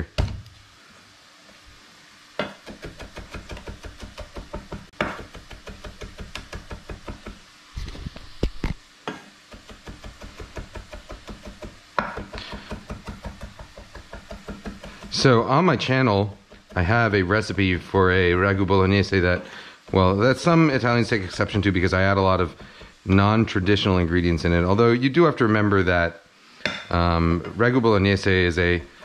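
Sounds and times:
knife chopping on wooden board: 2.4 - 7.4, 9.1 - 15.2.

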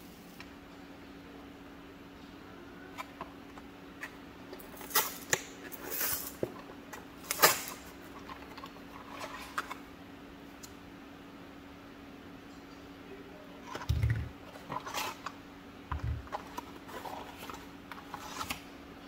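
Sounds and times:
plastic cup handling: 13.7 - 18.6.

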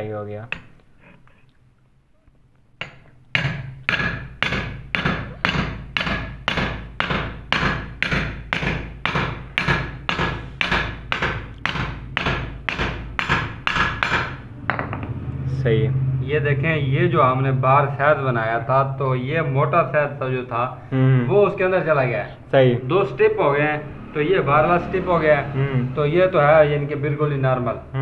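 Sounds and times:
hammer striking steel drift: 2.8 - 19.6.

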